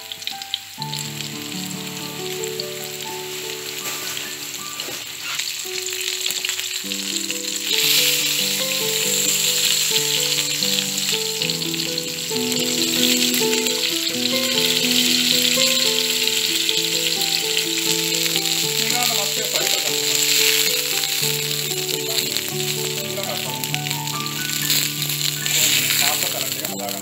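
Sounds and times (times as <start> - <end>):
chicken sizzling in oil: 0.0 - 27.0
gentle background music: 0.0 - 27.0.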